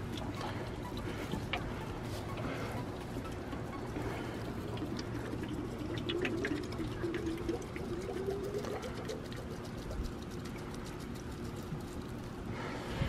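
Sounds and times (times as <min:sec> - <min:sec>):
water gurgling out of can: 0:03.3 - 0:11.9.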